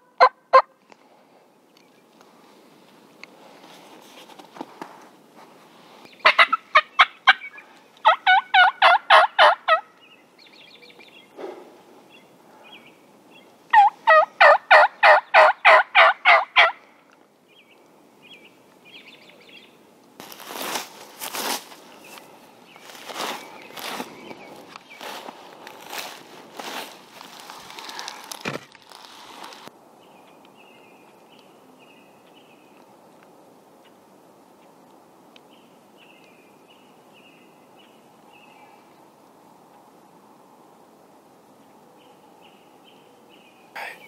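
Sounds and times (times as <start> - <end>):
turkeys gobbling: 0.2 - 0.7, 6.2 - 9.8, 13.7 - 16.8
rustling: 2.2 - 6.1, 20.2 - 29.7.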